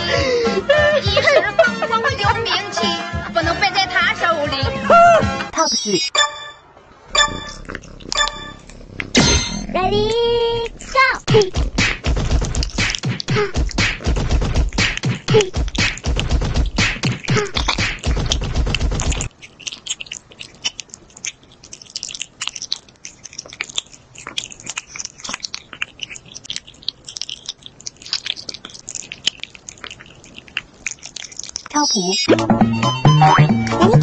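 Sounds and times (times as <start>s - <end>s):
cat slurping and chewing: 7.2s - 32.1s.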